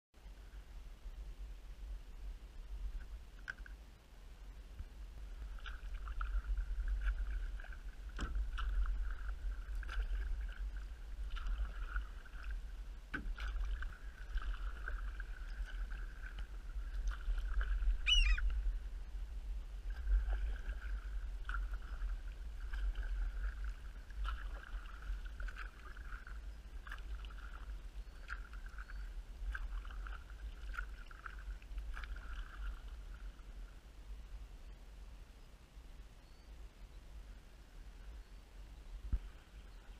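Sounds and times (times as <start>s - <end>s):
steady low rumble: 0.2s - 39.9s
paddle splashes and drips: 4.8s - 18.9s, 19.7s - 33.8s
short high bird call: 18.0s - 18.4s.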